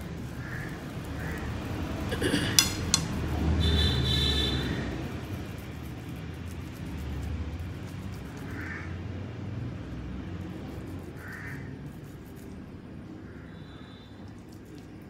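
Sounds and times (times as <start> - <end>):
crow cawing: 8.6 - 8.9, 11.2 - 11.7.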